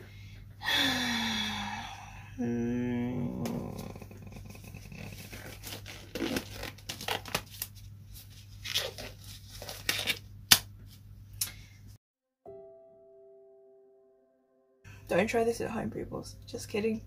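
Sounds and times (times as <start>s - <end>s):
low steady hum: 0.0s - 14.2s, 14.9s - 17.0s
rubber gloves rustling and snapping: 4.9s - 11.5s.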